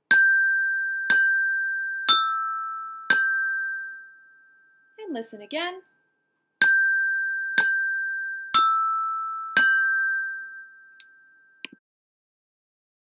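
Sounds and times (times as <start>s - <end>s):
resonator bells struck with mallet: 0.0s - 4.5s, 6.6s - 11.0s.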